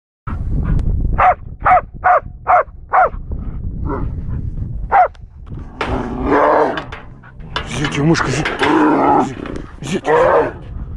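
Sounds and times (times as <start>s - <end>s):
dog barking: 1.2s - 3.2s, 4.9s - 5.2s.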